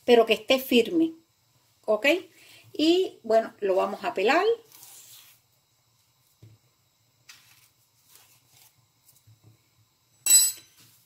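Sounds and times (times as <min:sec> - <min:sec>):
plantain peel ripping: 0:07.3 - 0:09.2
soft rustles of handling: 0:07.3 - 0:09.4.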